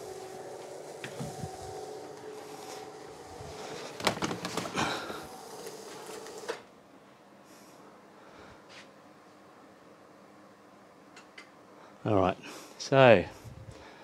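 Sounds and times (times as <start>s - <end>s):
projector screen motor humming: 0.0s - 7.0s.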